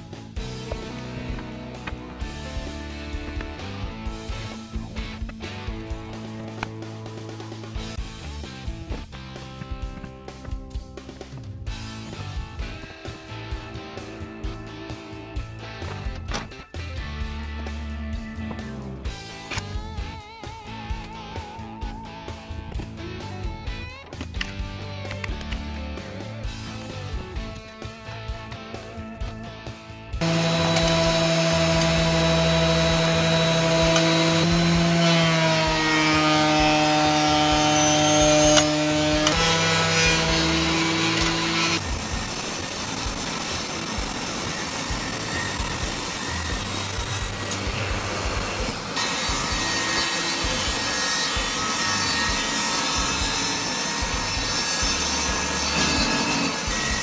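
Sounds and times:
planer cutting wood: 30.2s - 57.0s
thickness planer motor whine: 30.2s - 57.0s.

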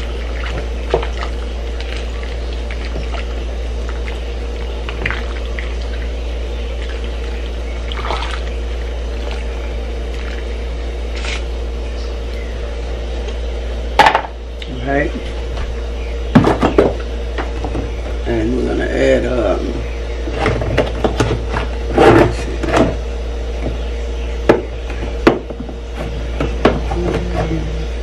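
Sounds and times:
liquid sloshing in pot: 0.0s - 10.7s
steady low hum: 0.0s - 28.0s.

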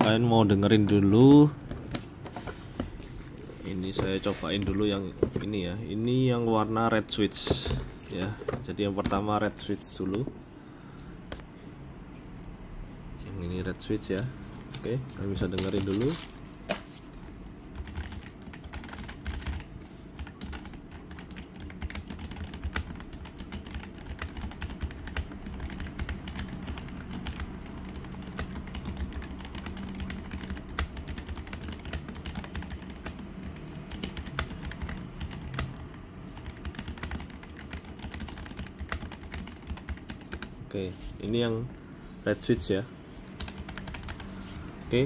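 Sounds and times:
fast typing on mechanical keyboard: 15.1s - 16.4s, 17.7s - 40.6s, 43.4s - 44.4s.

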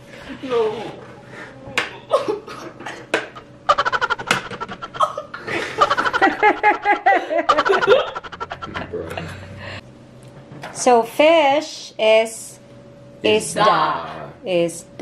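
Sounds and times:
boys laughing loudly: 2.1s - 9.8s.

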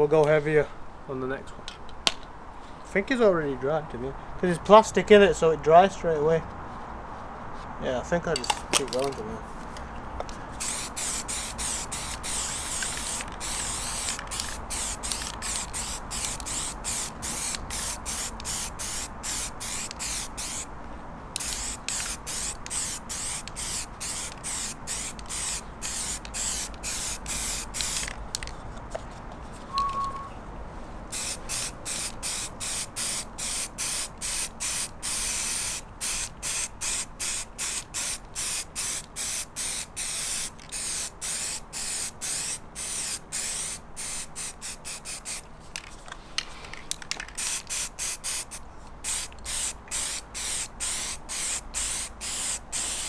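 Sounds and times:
aerosol can spraying: 10.6s - 20.7s, 21.4s - 28.1s, 31.1s - 45.4s, 47.4s - 53.0s.

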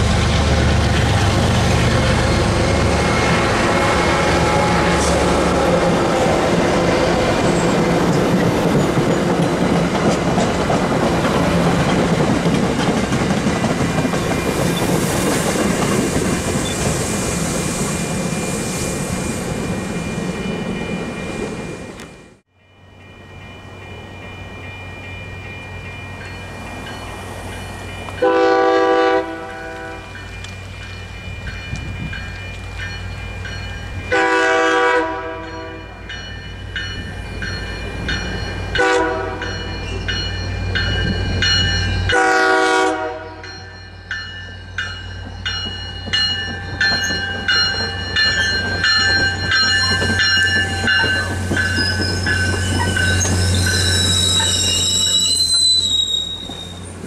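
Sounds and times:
train coaches rolling past: 0.0s - 57.0s
train horn: 2.0s - 7.5s, 28.2s - 30.2s, 34.1s - 36.0s, 38.8s - 39.5s, 42.1s - 43.6s
crossing bells ringing: 19.3s - 57.0s.

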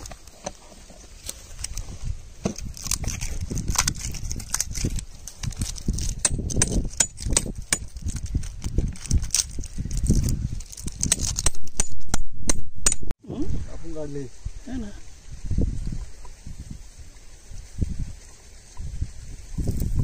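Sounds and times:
straw crackling and rustling: 0.0s - 11.4s.

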